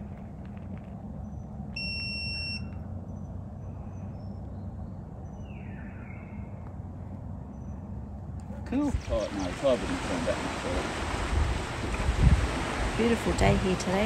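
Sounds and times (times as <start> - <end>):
low background rumble: 0.0 - 14.0
high electronic beep: 1.8 - 2.7.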